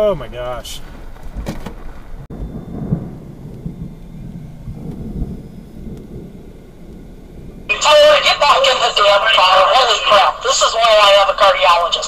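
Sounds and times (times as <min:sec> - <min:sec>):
rolling thunder: 0:00.0 - 0:09.3.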